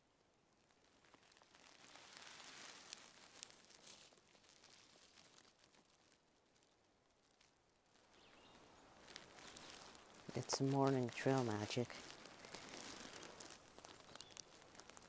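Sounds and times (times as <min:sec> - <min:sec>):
faint outdoor hiss: 0:00.0 - 0:15.0
soft rustles and clicks: 0:00.2 - 0:15.0.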